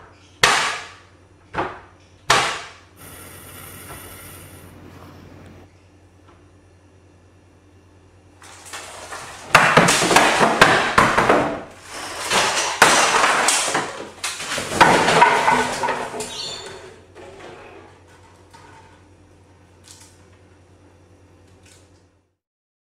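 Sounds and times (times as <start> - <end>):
kitchen things clattering on floor: 8.4 - 19.1.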